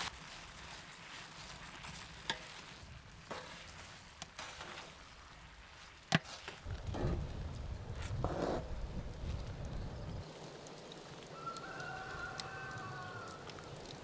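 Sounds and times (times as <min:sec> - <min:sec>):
wooden spoon stirring in pan: 0:00.0 - 0:09.4.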